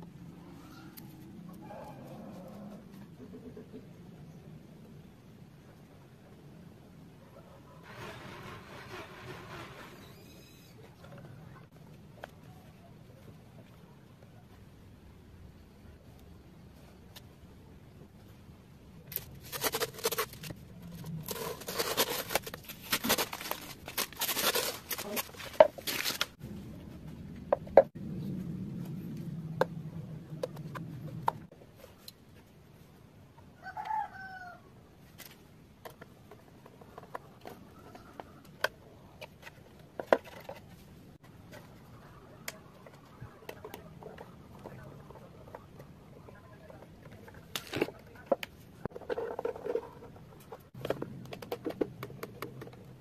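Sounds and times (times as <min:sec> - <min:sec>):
plastic parts clicking and scraping: 0:19.0 - 0:26.4, 0:35.1 - 0:53.0
low hum: 0:26.2 - 0:31.5.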